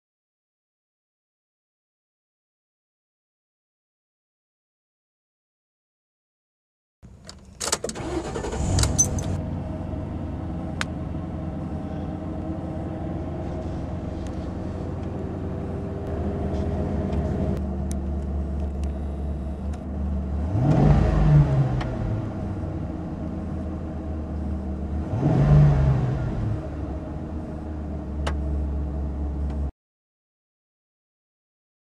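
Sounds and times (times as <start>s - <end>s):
car engine idling: 7.1s - 25.3s, 26.4s - 29.7s
car engine cranking and starting: 7.1s - 29.7s
engine revving: 7.9s - 28.7s.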